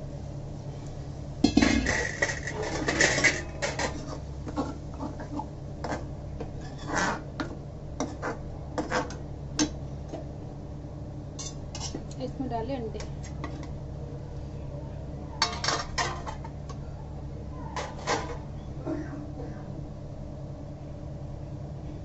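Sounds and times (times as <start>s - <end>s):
metal kitchenware clattering: 15.4s - 16.4s.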